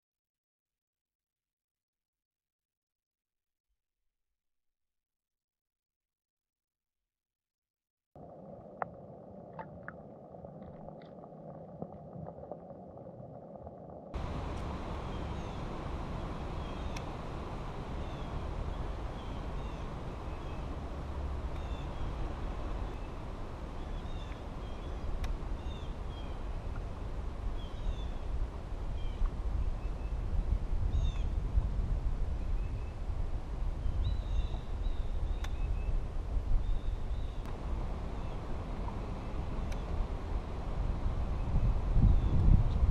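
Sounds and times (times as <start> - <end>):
low rumble: 8.2 - 32.4
small birds chirping: 14.4 - 20.9, 21.5 - 26.8, 33.9 - 36.0
faint sharp tick: 35.4 - 35.6.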